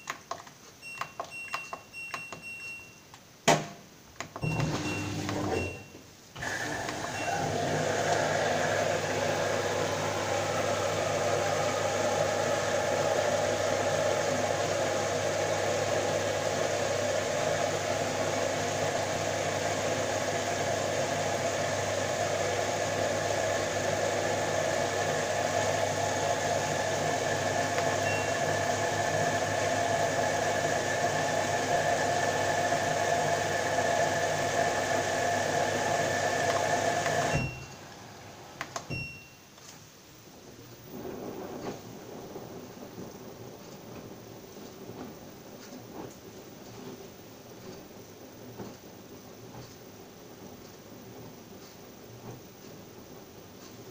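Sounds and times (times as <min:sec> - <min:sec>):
washing machine humming: 0:00.0 - 0:53.9
short high beeps: 0:38.9 - 0:39.4.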